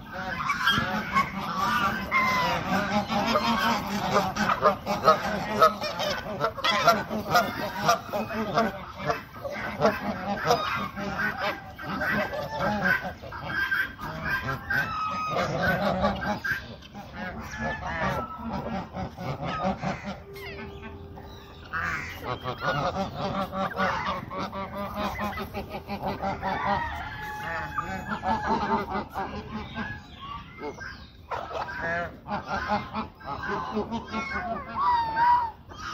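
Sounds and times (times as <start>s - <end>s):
geese honking: 0.0s - 35.9s
peafowl calling: 0.0s - 35.9s.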